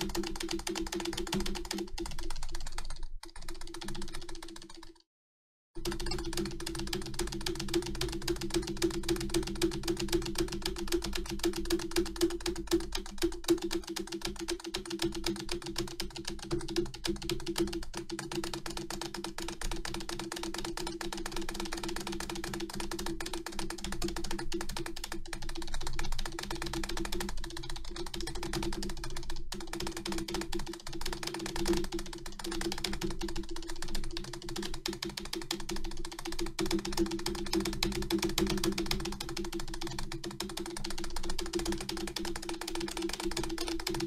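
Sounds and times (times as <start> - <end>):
keyboard keys clicking: 0.0 - 4.9, 23.8 - 44.0.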